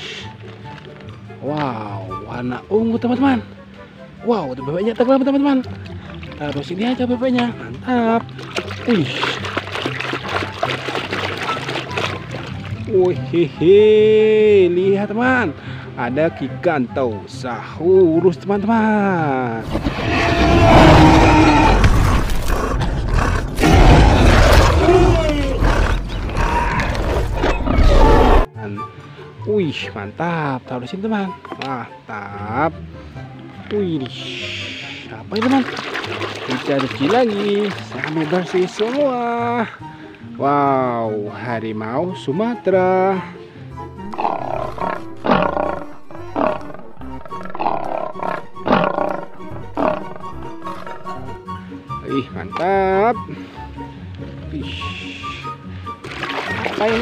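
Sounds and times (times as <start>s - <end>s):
background music: 0.0s - 57.0s
dinosaurs roaring and snarling: 19.6s - 28.5s, 44.0s - 51.4s.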